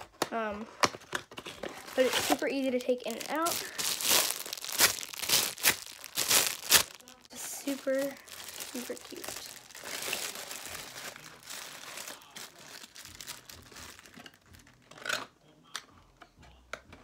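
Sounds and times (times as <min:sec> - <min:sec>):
plastic bag crinkling: 0:01.6 - 0:14.6.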